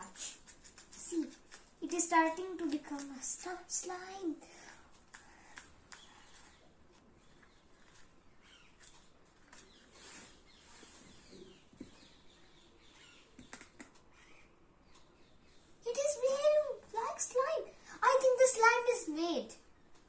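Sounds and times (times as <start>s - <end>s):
faint bird chirps: 5.9s - 16.7s.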